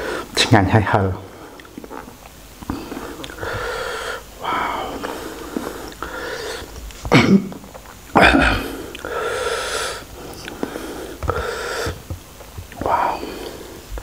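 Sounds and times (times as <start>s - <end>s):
breathy exhales: 2.7s - 6.7s, 8.4s - 12.0s.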